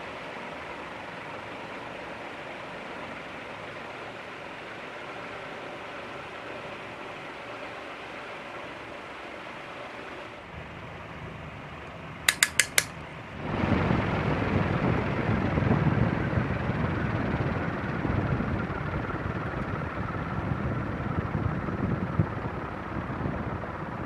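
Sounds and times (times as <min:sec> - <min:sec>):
ceiling fan humming: 0:00.0 - 0:24.0
quick metallic clicks: 0:12.3 - 0:13.0
rushing air with low rumble: 0:13.2 - 0:24.0.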